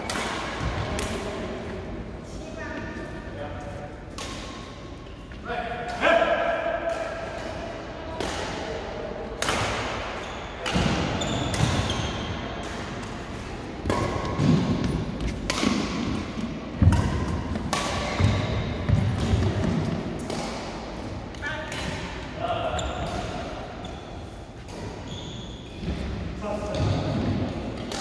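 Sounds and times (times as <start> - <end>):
rackets hitting shuttlecock: 0.0 - 1.2, 4.1 - 5.0, 6.6 - 23.9, 25.7 - 28.0.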